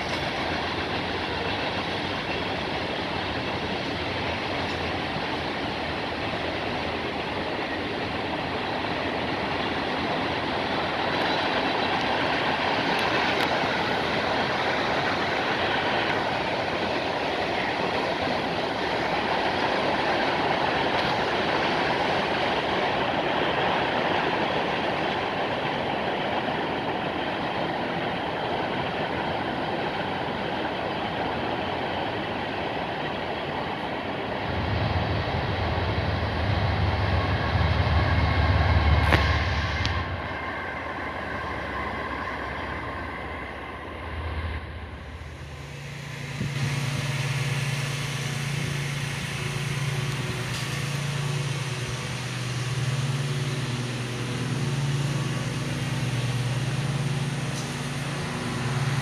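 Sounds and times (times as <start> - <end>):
freight train rolling past: 0.0 - 59.0
deep low rumble: 34.4 - 46.9.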